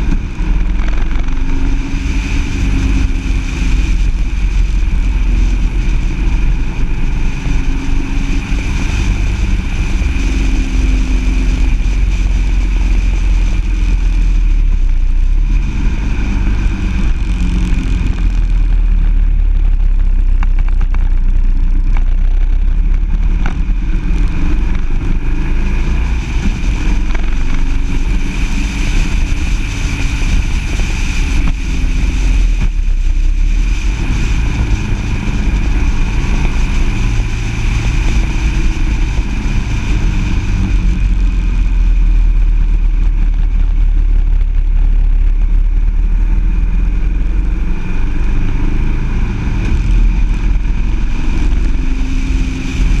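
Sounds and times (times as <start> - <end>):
high whine: 0.0 - 53.0
vehicle engine running: 0.0 - 53.0
wind rumble on microphone: 0.0 - 53.0.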